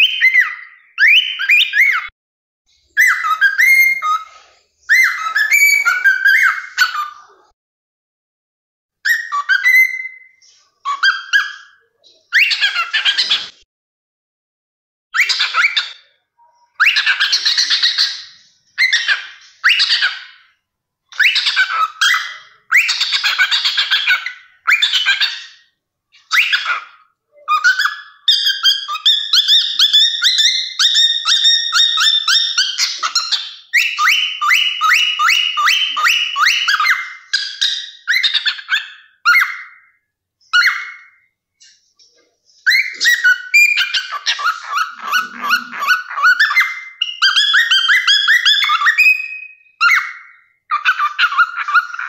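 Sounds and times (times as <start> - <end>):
cockatiel calling: 0.0 - 2.1, 3.0 - 7.4, 9.1 - 13.6, 15.2 - 41.8, 42.5 - 52.0
cockatiel chattering: 16.8 - 20.4, 21.2 - 39.8, 42.7 - 52.0.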